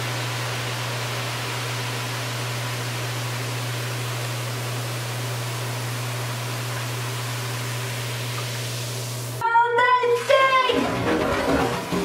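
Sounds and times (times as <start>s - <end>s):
fizzing hiss in bathtub: 0.0s - 9.4s.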